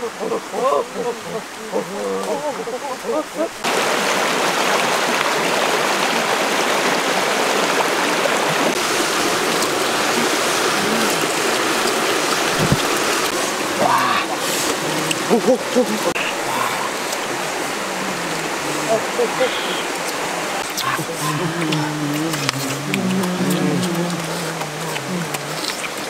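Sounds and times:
voices: 0.0 - 3.8, 9.6 - 26.0
stream rushing over stones: 0.0 - 26.0.

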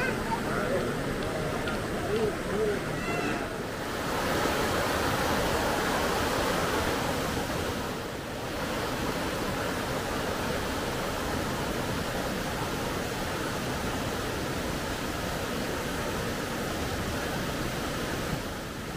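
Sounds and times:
river water rushing: 0.0 - 18.9.

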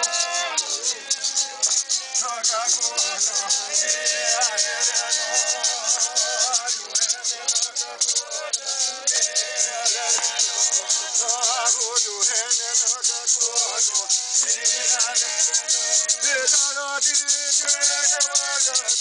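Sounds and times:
gourd rattle shaken: 0.0 - 19.0
voices singing wavering notes: 0.0 - 19.0.

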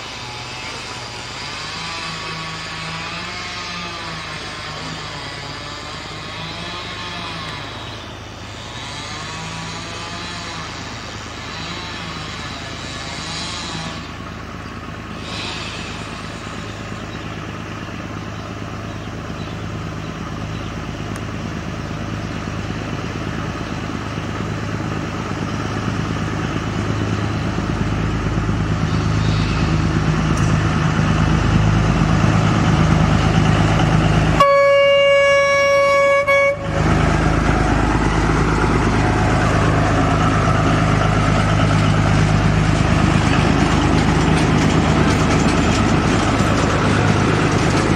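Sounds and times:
diesel locomotive engine drone: 0.0 - 47.9
locomotive horn: 34.3 - 37.1.

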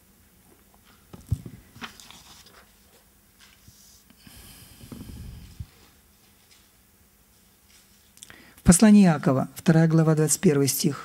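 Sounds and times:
paper rustling: 1.2 - 3.8
microphone handling noise: 4.6 - 5.9.

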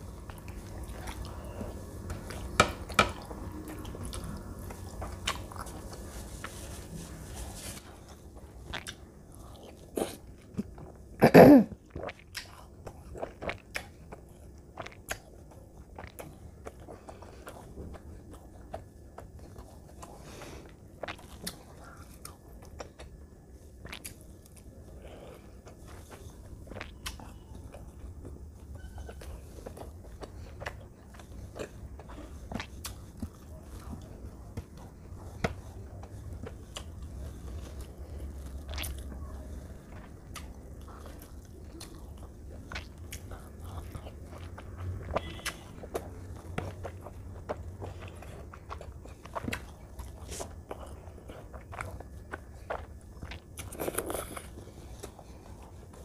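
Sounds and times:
close chewing and mouth sounds: 0.0 - 56.0.

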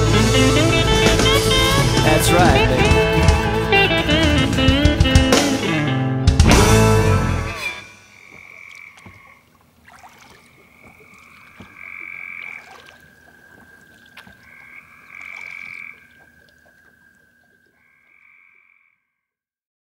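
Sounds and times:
frogs trilling: 7.8 - 19.3.

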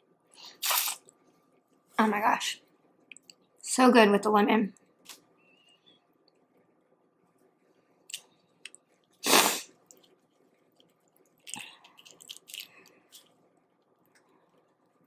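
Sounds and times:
wet chewing and shell clicks: 9.8 - 15.0.

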